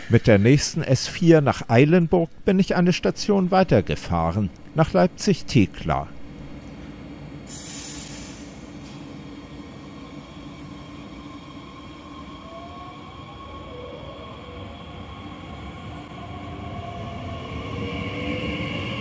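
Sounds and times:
train hum: 2.2 - 19.0
short air hiss: 7.4 - 9.3.

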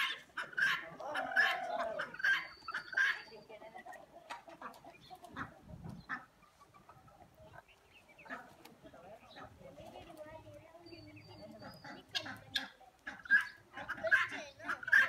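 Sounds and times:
poultry clucking: 0.0 - 15.0.

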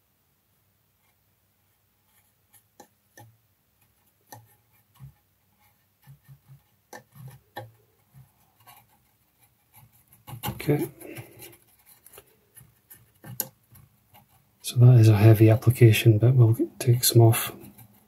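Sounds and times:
paintbrush dabbing taps: 2.1 - 14.4.

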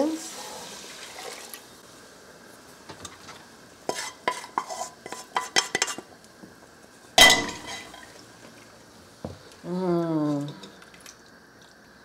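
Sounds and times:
cookware clinking and scraping: 3.0 - 6.1, 7.2 - 8.1.

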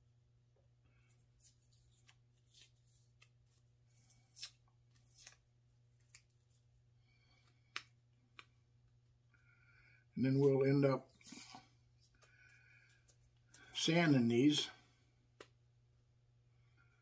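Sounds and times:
tape and paper peeling crinkles: 1.4 - 6.6.

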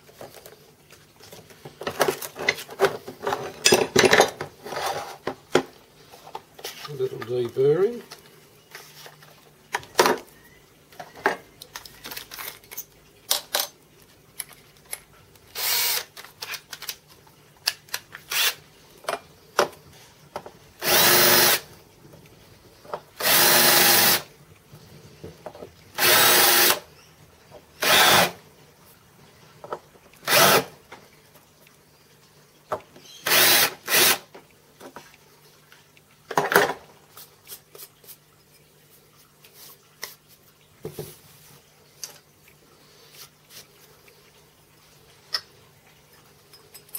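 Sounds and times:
cordless drill spinning: 15.6 - 16.1, 18.3 - 18.6, 20.8 - 21.7, 23.2 - 24.3, 26.0 - 26.8, 27.8 - 28.4, 30.2 - 30.7, 33.2 - 34.3.

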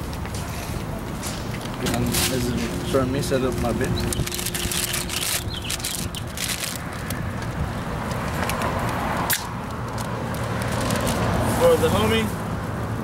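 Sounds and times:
paper bag crinkling: 3.5 - 7.2.

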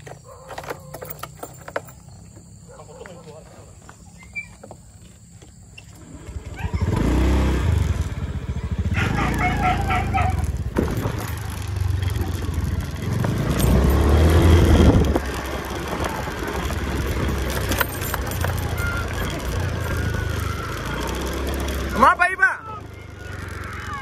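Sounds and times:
pulsed call: 8.8 - 10.6.

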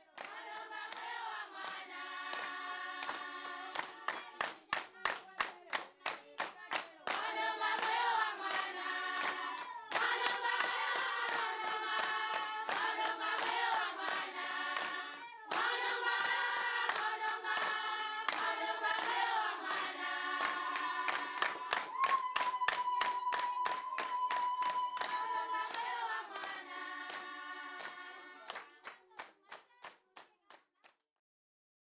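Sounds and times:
choir singing: 0.0 - 4.5, 6.9 - 28.8
hand clapping: 0.0 - 31.0.

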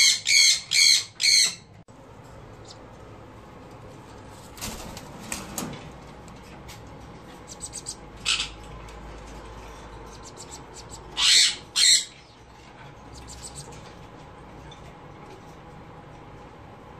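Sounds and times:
parrots screeching: 0.0 - 1.7, 7.6 - 8.6, 10.4 - 12.4
parrots squawking: 0.0 - 1.7, 7.5 - 8.8, 10.0 - 13.9.

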